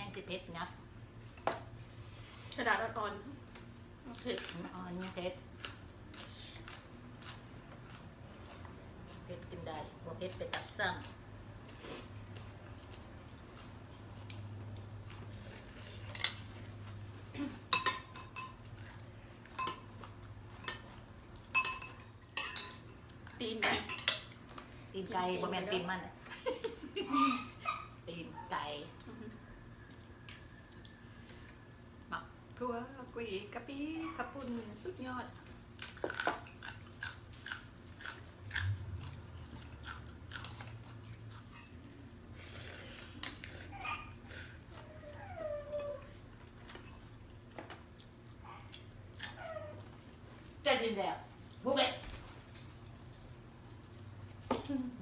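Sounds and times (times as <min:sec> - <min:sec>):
low steady hum: 0:00.0 - 0:55.0
spoons clinking against bowls: 0:17.7 - 0:18.6, 0:19.5 - 0:20.0, 0:20.6 - 0:22.9, 0:23.7 - 0:24.3.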